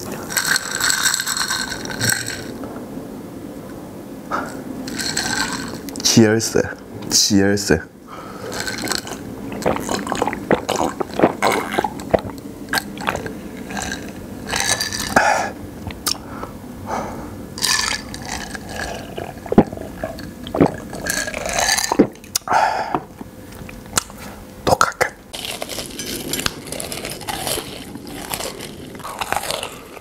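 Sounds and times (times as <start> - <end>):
breathy bursts: 8.0 - 8.8, 22.5 - 23.1
gulping and swallowing: 8.5 - 15.2, 17.6 - 23.8
wet mouth clicks: 8.6 - 15.2, 15.9 - 16.2.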